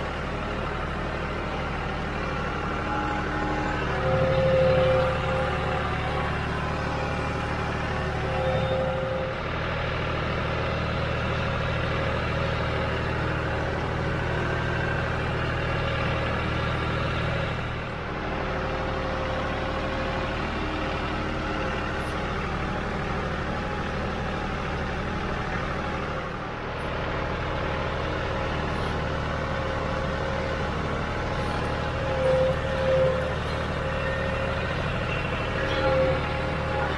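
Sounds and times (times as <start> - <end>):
tractor diesel engine running: 0.0 - 36.9.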